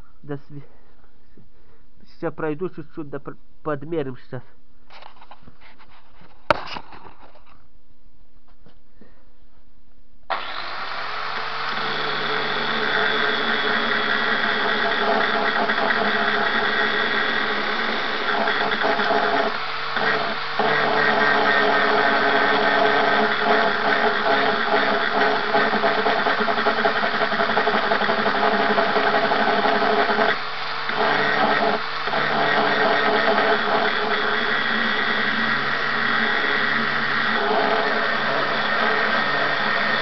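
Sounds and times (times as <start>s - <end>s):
angle grinder grinding steel: 10.3s - 40.0s.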